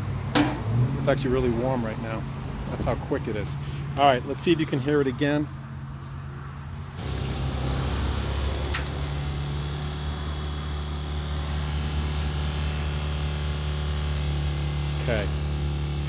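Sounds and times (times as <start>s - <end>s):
water heater humming: 7.0s - 16.0s.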